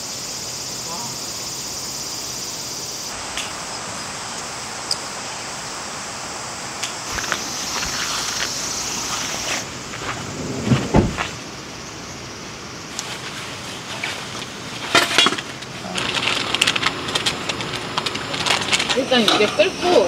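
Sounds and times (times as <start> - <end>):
insects chorus: 0.0 - 20.0
low thumps: 10.0 - 11.4.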